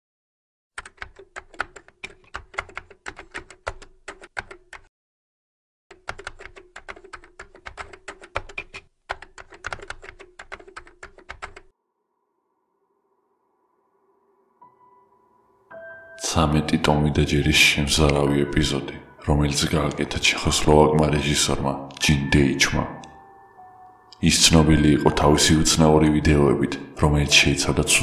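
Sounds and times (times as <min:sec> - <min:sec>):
rapid keyboard key clicks: 0:00.8 - 0:04.9, 0:05.9 - 0:11.7.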